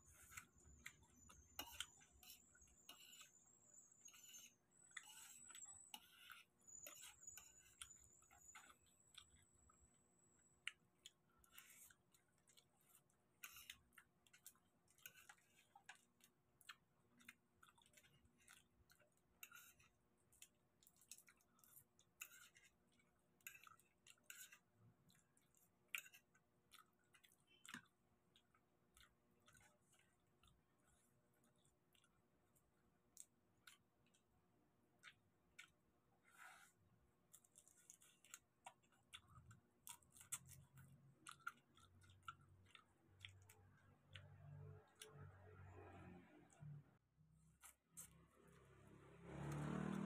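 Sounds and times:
chewing and lip smacking: 10.6s - 36.0s, 37.2s - 45.6s
prawn shells being peeled: 10.7s - 45.4s.

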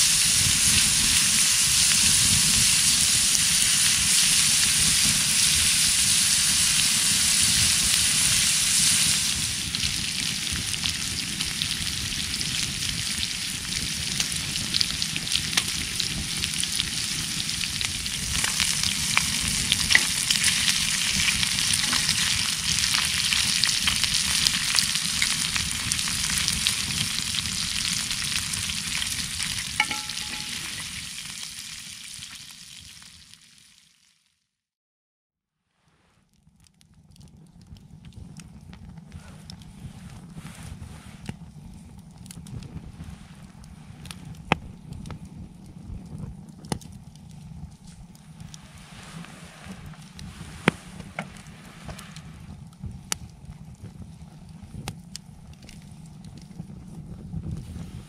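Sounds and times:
crackle of spray: 0.0s - 34.3s, 35.7s - 58.0s
low rumble: 37.6s - 58.0s
tyres hissing on wet road: 48.6s - 52.4s.

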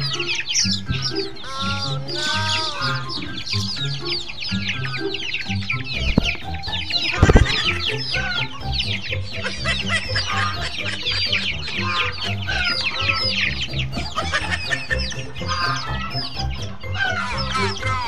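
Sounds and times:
chicks peeping: 0.0s - 18.0s.

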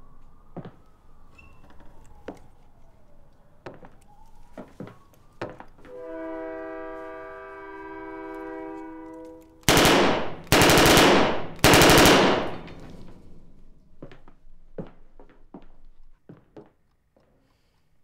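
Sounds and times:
submachine gun bursts: 9.6s - 13.1s.

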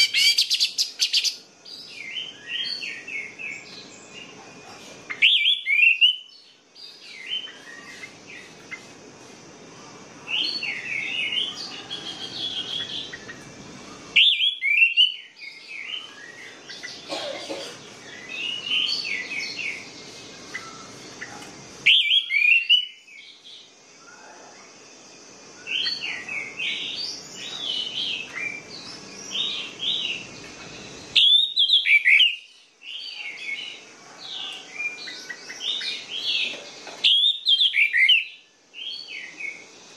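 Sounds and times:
thrush singing whistled phrases: 5.2s - 6.3s, 14.2s - 16.4s, 21.9s - 23.0s, 31.1s - 32.5s.

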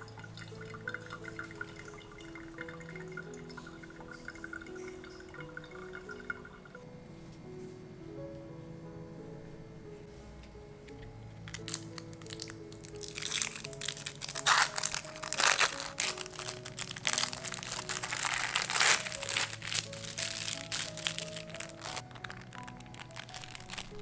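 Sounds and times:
light background music: 0.0s - 24.0s
plastic film crinkling: 11.4s - 24.0s.

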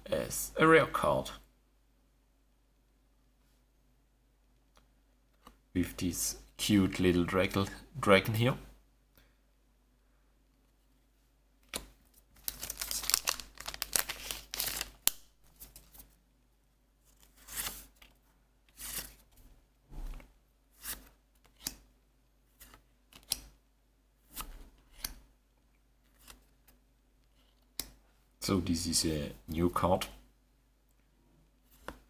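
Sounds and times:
plastic packaging crinkling: 12.4s - 15.2s
cards sliding swishes: 17.2s - 18.0s.

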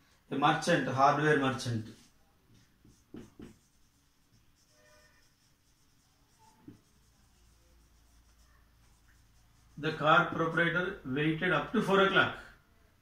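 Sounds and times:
marker writing on whiteboard: 1.6s - 10.7s
soft knock: 3.1s - 3.6s.

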